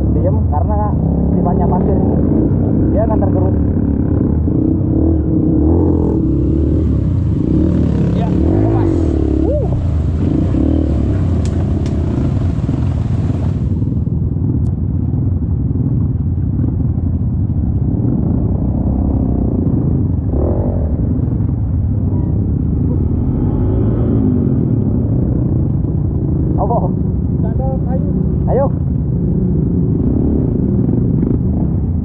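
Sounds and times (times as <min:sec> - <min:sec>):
dirt bike engine: 0:00.0 - 0:32.0.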